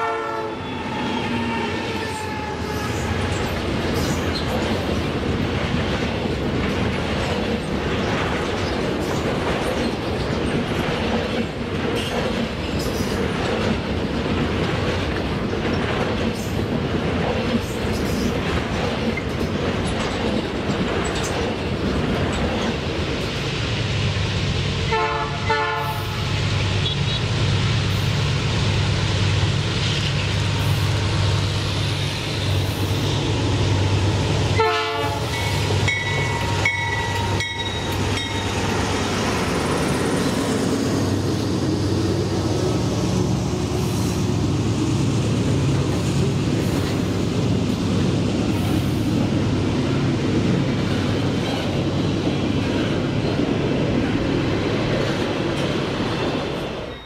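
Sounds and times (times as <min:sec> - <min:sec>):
train horn blasts: 0:00.0 - 0:03.3, 0:24.9 - 0:26.2, 0:34.6 - 0:37.7
diesel train engine rumble: 0:00.0 - 0:56.9.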